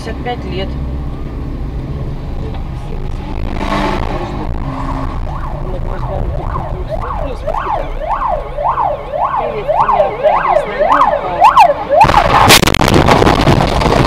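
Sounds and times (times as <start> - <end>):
car road noise: 0.0 - 14.0
ambulance siren yelping: 4.4 - 12.6
loud collision crash: 12.0 - 14.0.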